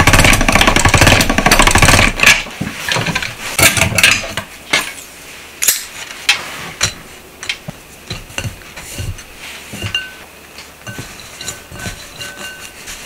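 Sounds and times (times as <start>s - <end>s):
noodles knocking a glass bowl: 10.8s - 12.7s.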